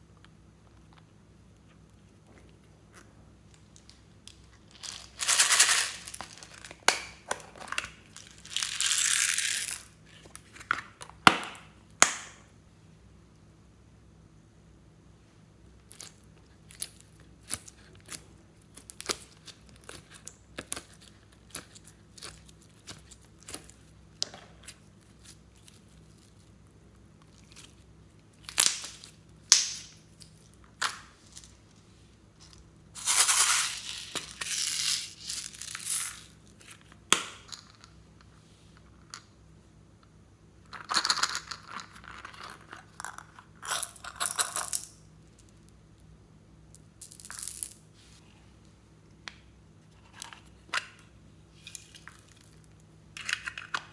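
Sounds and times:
beads rattling into a hand: 4.7 - 6.7, 33.0 - 36.3.

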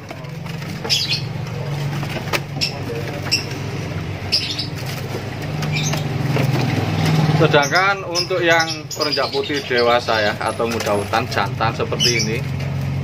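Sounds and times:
small birds fluttering: 0.0 - 13.0.

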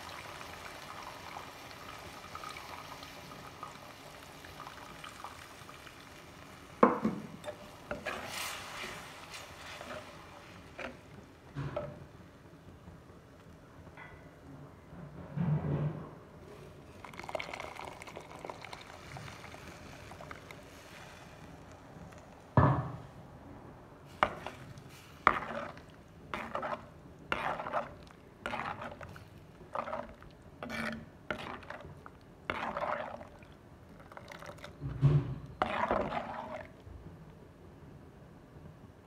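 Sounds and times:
liquid pouring into a pot: 0.0 - 11.2, 16.7 - 22.6, 24.2 - 36.8
ladle stirring and scraping pot: 7.4 - 12.1, 24.1 - 36.8.

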